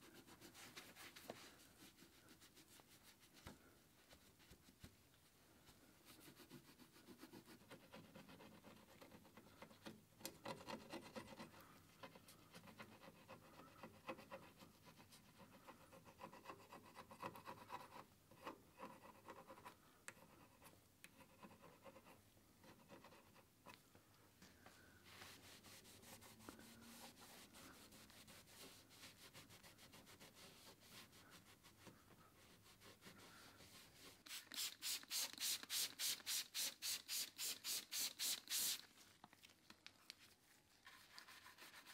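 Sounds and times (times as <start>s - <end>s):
spray bottle hissing spurts: 34.3s - 38.9s.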